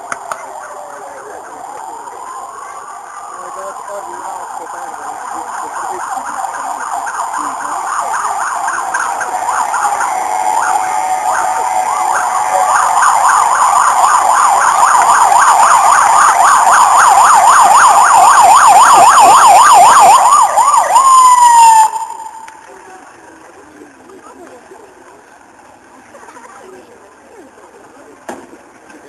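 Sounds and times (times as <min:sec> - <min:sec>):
fire engine siren: 0:00.0 - 0:23.2.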